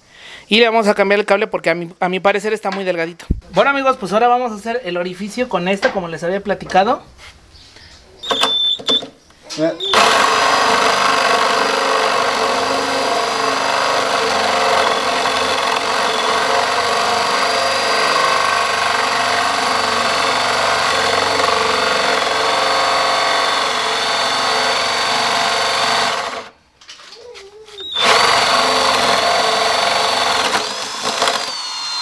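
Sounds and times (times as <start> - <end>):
cordless drill motor whine: 9.8 - 26.5, 27.8 - 32.0
hole saw cutting wood: 9.8 - 26.5, 27.8 - 32.0.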